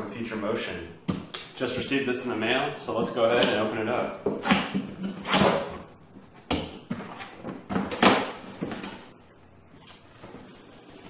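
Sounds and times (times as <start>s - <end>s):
sharp crack of cardboard: 6.5s - 9.1s.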